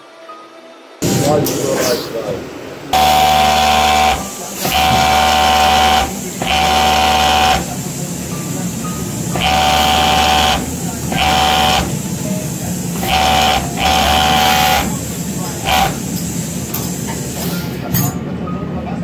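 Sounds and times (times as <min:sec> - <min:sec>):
overlock sewing machine running: 0:02.9 - 0:17.5.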